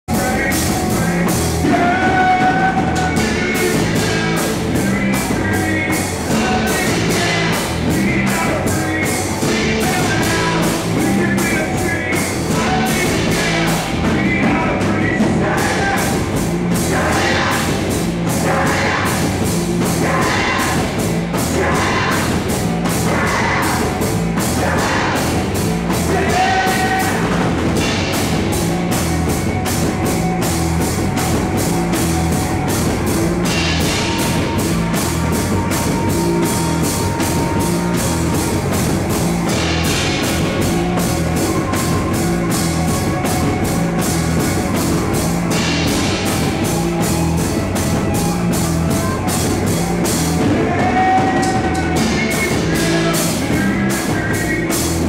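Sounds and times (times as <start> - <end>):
bass guitar: 0.0 - 55.0
drums: 0.0 - 55.0
electric guitar: 0.1 - 55.0.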